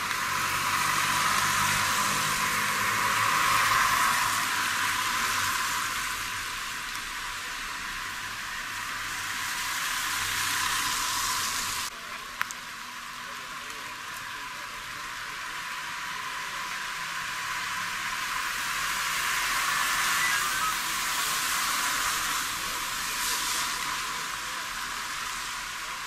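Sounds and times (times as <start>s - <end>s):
tyres hissing on wet road: 0.0s - 26.0s.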